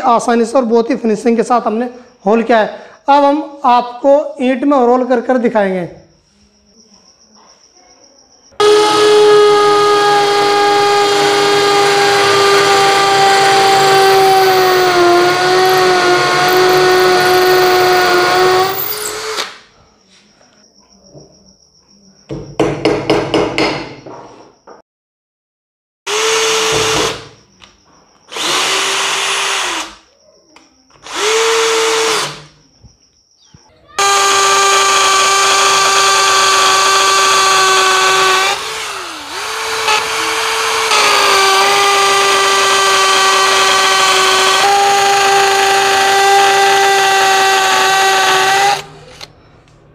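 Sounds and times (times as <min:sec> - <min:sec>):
power drill drilling into masonry: 0:08.6 - 0:19.6, 0:26.1 - 0:27.3, 0:28.3 - 0:30.0, 0:31.0 - 0:32.5, 0:34.0 - 0:49.3.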